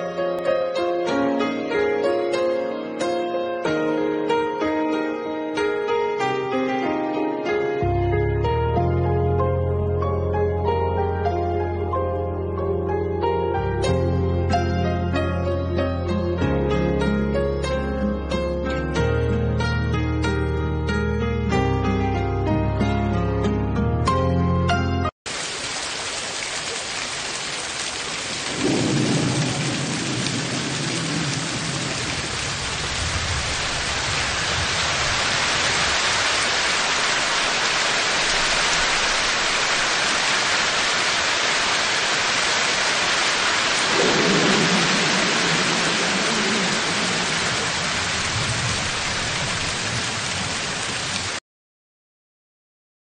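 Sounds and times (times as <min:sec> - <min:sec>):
heavy rain hiss: 0:25.3 - 0:51.4
thunder rolling: 0:28.5 - 0:36.0, 0:43.6 - 0:50.7.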